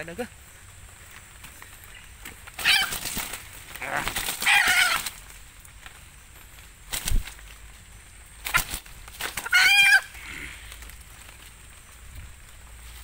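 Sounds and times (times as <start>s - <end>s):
wings flapping and rustling: 0.8s - 13.0s
bird squawking harshly: 2.6s - 3.2s, 3.8s - 5.2s, 9.4s - 10.5s.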